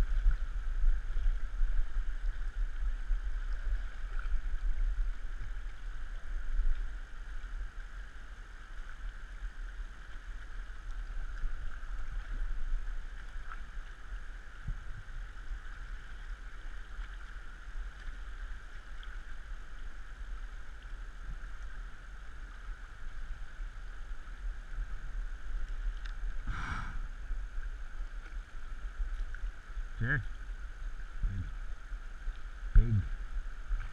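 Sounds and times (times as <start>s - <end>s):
river water rushing: 26.2s - 29.0s
low rumble: 26.3s - 27.6s.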